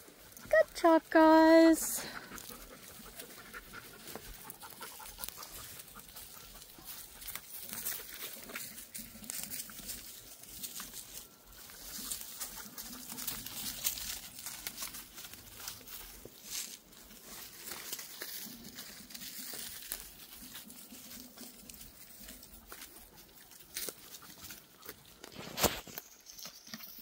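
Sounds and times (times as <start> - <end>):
rustling in dry leaves: 1.2 - 27.0
dog panting: 2.0 - 7.4.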